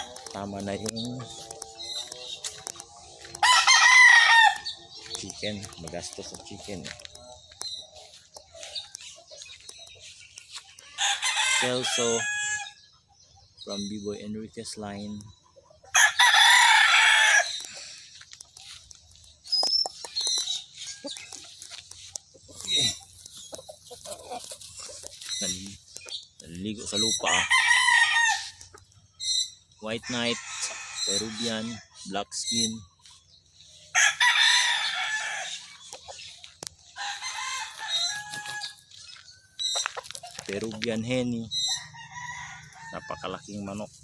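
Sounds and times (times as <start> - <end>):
rooster crowing: 3.4 - 4.8, 10.8 - 12.8, 15.9 - 17.7, 27.2 - 28.6, 33.9 - 35.6, 36.9 - 38.8, 41.7 - 43.2
rooster scratching in soil: 18.2 - 25.7, 36.9 - 41.0.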